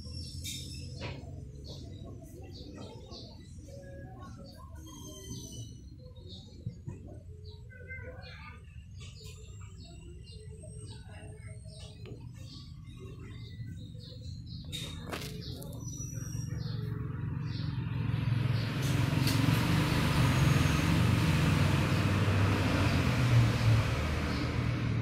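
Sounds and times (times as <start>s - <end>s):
bird chirps: 0.0s - 17.8s
vehicle engine passing: 16.2s - 25.0s.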